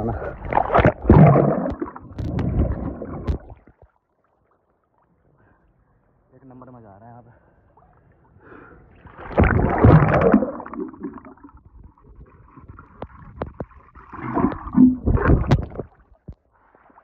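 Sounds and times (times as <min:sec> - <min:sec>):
water splashing and gurgling: 0:00.0 - 0:03.9, 0:09.0 - 0:17.0.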